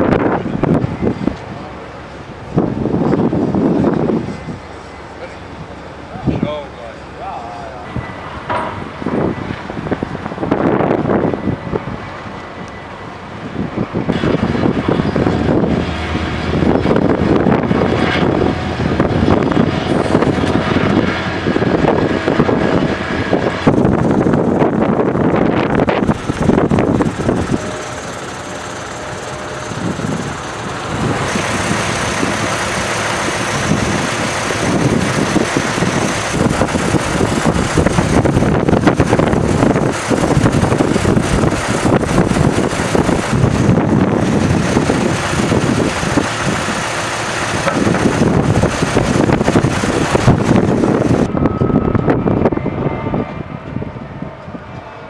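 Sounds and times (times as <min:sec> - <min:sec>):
truck diesel engines idling: 0:00.0 - 0:54.6
hissing noise: 0:25.4 - 0:51.4.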